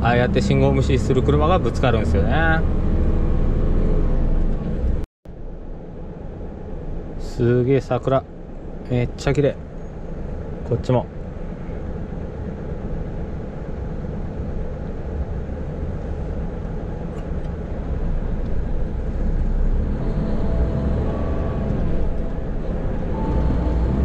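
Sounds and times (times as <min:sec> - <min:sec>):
truck engine and road rumble: 0:00.0 - 0:24.0
faint whine: 0:05.3 - 0:24.0.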